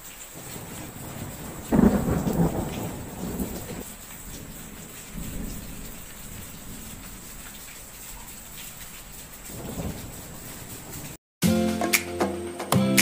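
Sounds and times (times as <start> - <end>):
steady rain: 0.0 - 11.2
thunderclap rumbling: 0.4 - 11.2.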